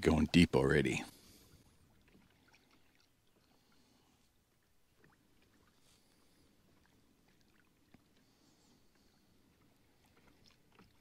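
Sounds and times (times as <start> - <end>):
faint small ticks and taps: 7.3 - 8.2.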